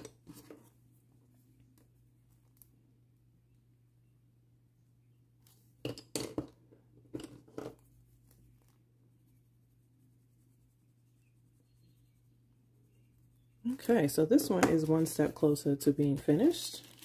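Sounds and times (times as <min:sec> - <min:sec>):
faint low hum: 0:00.0 - 0:17.0
pencils clattering on table: 0:05.8 - 0:07.8.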